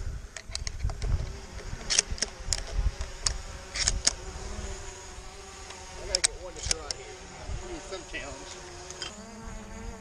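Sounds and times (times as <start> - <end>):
wind rumble on microphone: 0.0 - 4.1
steady buzzing hum: 0.0 - 10.0
shotgun metallic clicks: 1.9 - 4.2, 5.6 - 7.0.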